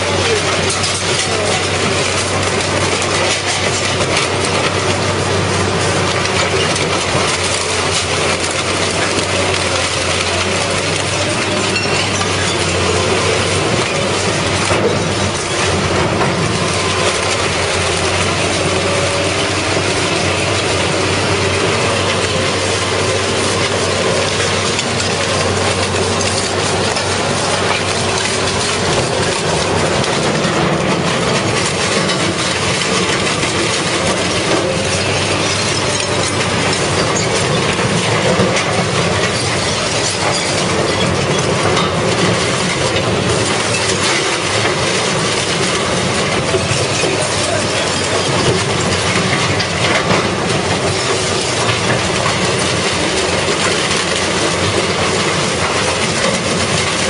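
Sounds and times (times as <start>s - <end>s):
industrial shredder running: 0.0s - 57.0s.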